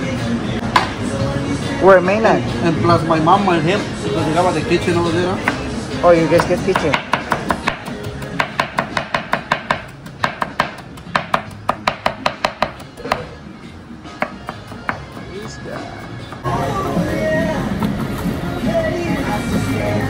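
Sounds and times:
music: 0:00.0 - 0:20.0
knife chopping on cutting board: 0:06.4 - 0:13.3.

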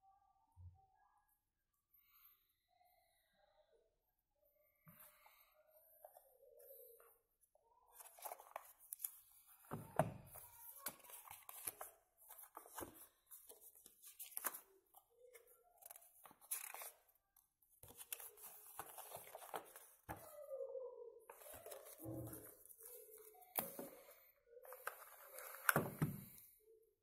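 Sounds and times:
paper rustling and crinkling: 0:07.9 - 0:17.0, 0:17.8 - 0:20.3, 0:21.3 - 0:23.9.

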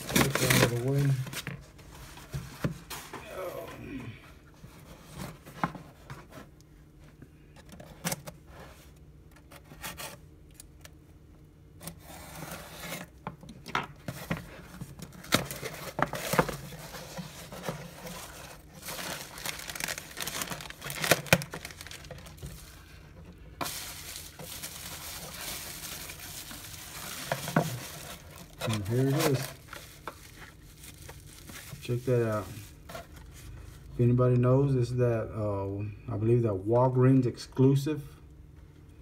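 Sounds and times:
bubble wrap crinkling: 0:00.0 - 0:02.1, 0:14.3 - 0:23.0, 0:23.6 - 0:33.8.

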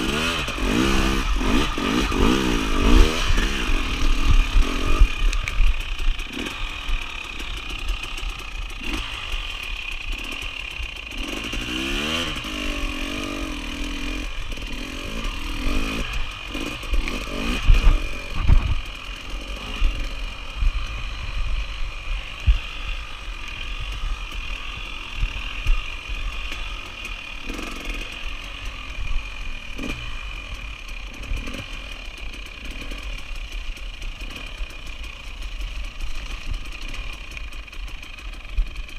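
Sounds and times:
motorcycle engine revving: 0:00.0 - 0:38.9
motorcycle thumping over bumps: 0:15.2 - 0:19.0.

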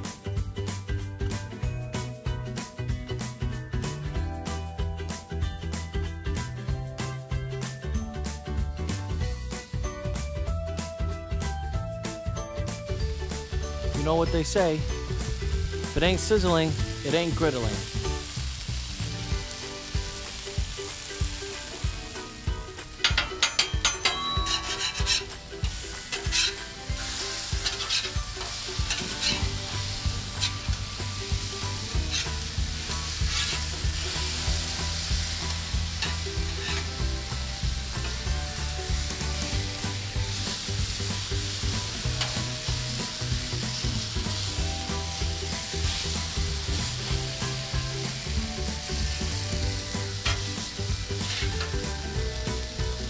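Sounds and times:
chicken sizzling on griddle: 0:00.0 - 0:53.0
metal spatulas scraping: 0:23.0 - 0:30.8, 0:31.9 - 0:32.4, 0:33.2 - 0:33.8, 0:36.0 - 0:37.0, 0:51.2 - 0:51.8.

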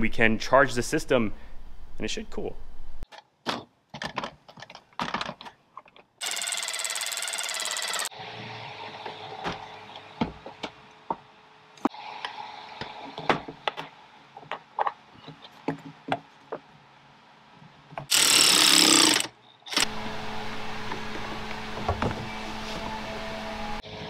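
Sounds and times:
plastic parts clicking and knocking: 0:03.1 - 0:06.2
cordless electric ratchet running: 0:06.2 - 0:08.1, 0:18.1 - 0:20.0.

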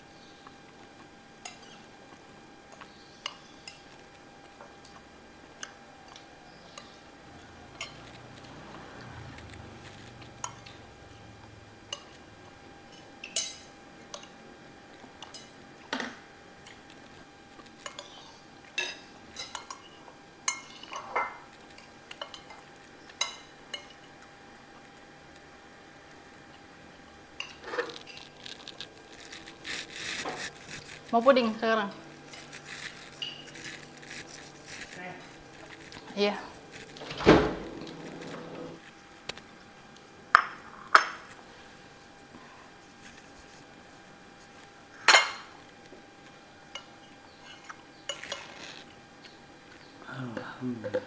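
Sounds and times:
spoons clinking on ceramic plates: 0:07.7 - 0:08.1, 0:12.9 - 0:14.3, 0:15.2 - 0:16.8, 0:17.8 - 0:24.2.

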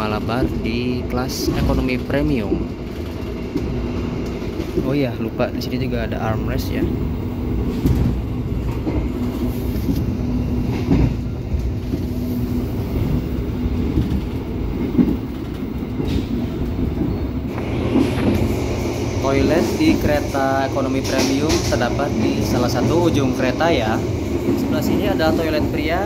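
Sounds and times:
train wheels rumbling on rails: 0:00.0 - 0:26.0.

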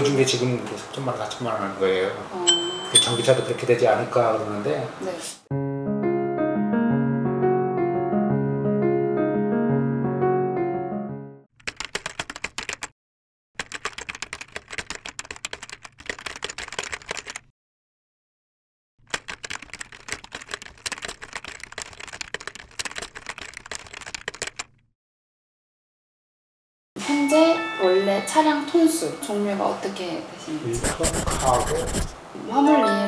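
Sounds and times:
piano music: 0:02.4 - 0:04.3, 0:05.5 - 0:11.5, 0:27.0 - 0:29.8
rapid typing key clicks: 0:11.6 - 0:12.9, 0:13.6 - 0:17.5, 0:19.1 - 0:24.8.

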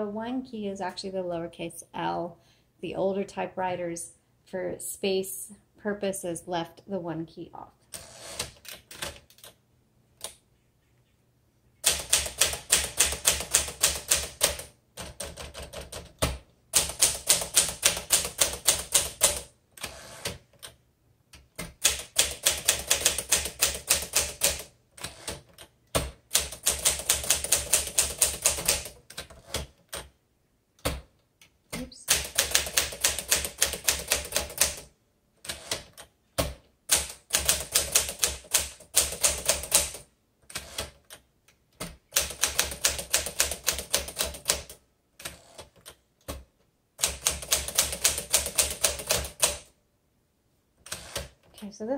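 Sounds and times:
manual typewriter typing: 0:08.0 - 0:09.6, 0:11.8 - 0:20.8, 0:21.4 - 0:30.1, 0:31.8 - 0:41.2, 0:41.8 - 0:49.7, 0:50.8 - 0:51.5.

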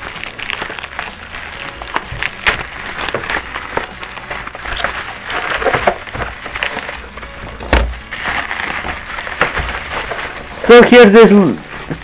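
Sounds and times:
bubble wrap crinkling: 0:00.0 - 0:12.0
thump: 0:07.6 - 0:08.0.

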